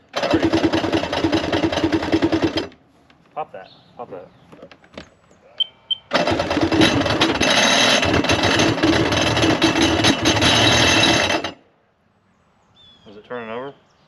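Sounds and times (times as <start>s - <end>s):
electric starter cranking engine: 0.0s - 2.8s, 6.1s - 11.6s.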